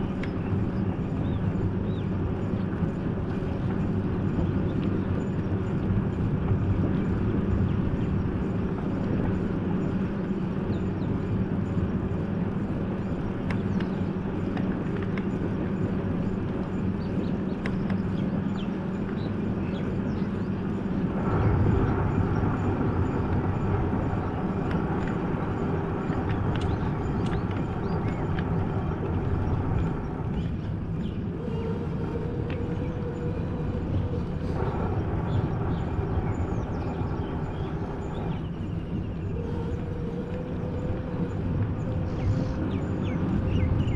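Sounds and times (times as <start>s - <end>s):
steady higher hum: 0.0s - 43.9s
vehicle engine and road noise: 0.0s - 43.9s.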